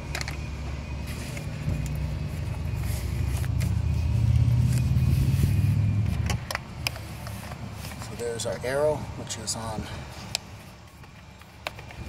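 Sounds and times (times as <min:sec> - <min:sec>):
vehicle engine rumbling: 0:00.0 - 0:12.0
hands clicking and rustling: 0:10.2 - 0:12.0.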